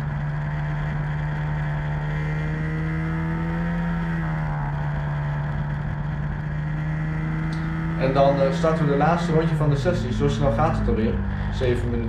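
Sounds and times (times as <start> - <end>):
kart engine at high revs: 0.0 - 12.0.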